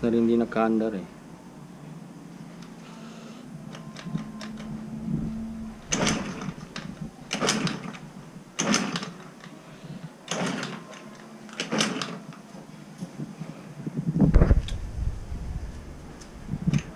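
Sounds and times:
scooter engine cranking: 0:03.7 - 0:09.6, 0:10.3 - 0:12.3.

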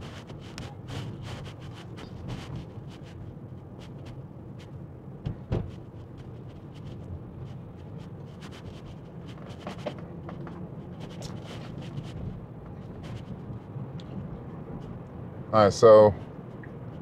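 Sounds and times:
road and tyre rumble: 0:00.0 - 0:17.0
thump: 0:05.2 - 0:05.8.

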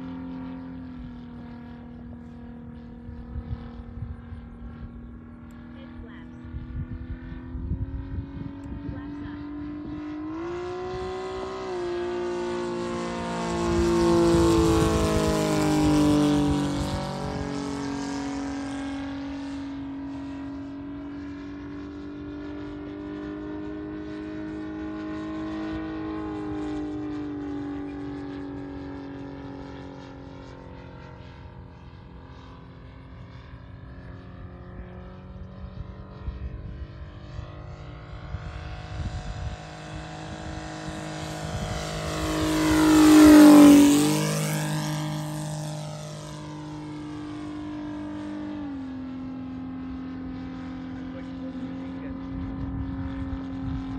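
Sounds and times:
model airplane engine passing: 0:00.0 - 0:53.9.

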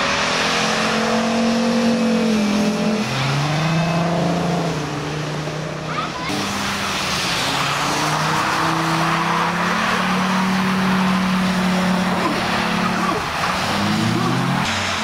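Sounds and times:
car engines revving: 0:00.0 - 0:15.0
tyres hissing through water spray: 0:06.3 - 0:15.0.

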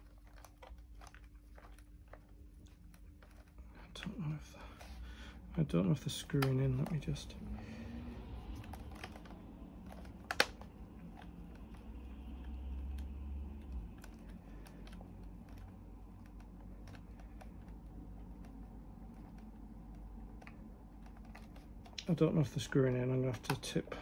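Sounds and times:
low rumble: 0:02.6 - 0:16.7
light clicks and taps: 0:05.6 - 0:24.0.

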